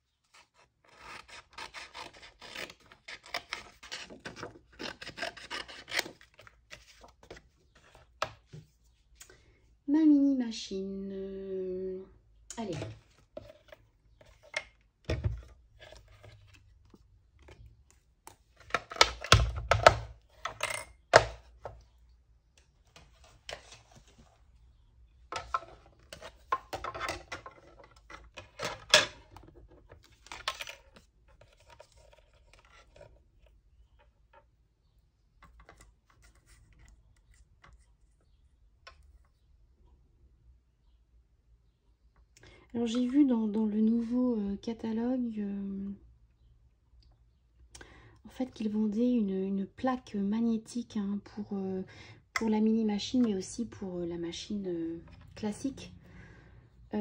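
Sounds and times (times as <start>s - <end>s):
faint scrapes and ticks: 35.4s - 39.5s.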